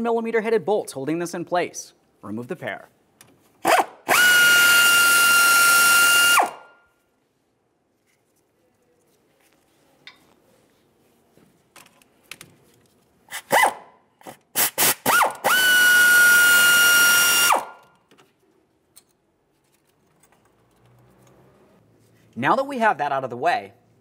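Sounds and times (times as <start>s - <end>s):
power tool motor whine: 4.1s - 6.6s, 15.1s - 17.7s.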